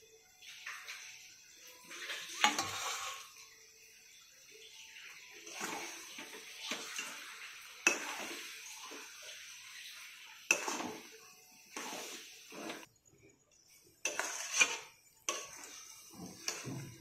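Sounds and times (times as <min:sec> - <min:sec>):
spoon scraping and stirring pickle: 0:07.8 - 0:09.1, 0:10.4 - 0:12.9, 0:13.6 - 0:17.0.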